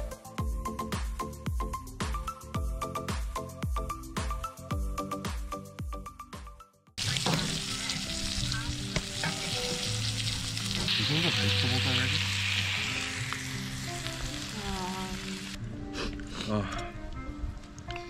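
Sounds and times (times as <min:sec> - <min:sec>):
steaks sizzling in a skillet: 0:07.0 - 0:15.6
fire crackles: 0:07.0 - 0:16.4.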